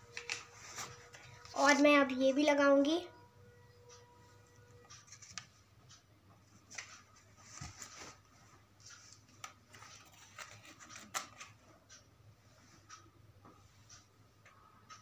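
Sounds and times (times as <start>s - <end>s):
paper card rustling: 0.1s - 1.8s, 9.0s - 11.6s.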